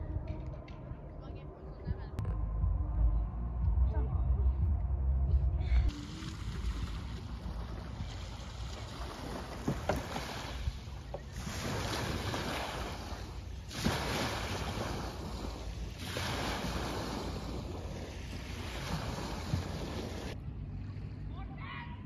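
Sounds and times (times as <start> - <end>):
wind on microphone: 0.0 - 21.1
low steady rumble: 0.0 - 22.0
water rushing: 5.9 - 20.4.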